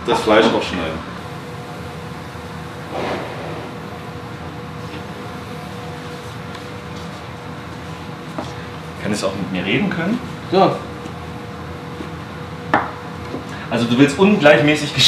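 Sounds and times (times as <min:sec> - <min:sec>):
kitchen equipment hum: 0:02.0 - 0:10.7.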